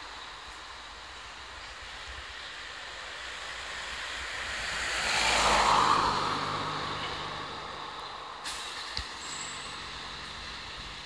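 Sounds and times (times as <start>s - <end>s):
car passing: 2.6s - 11.0s.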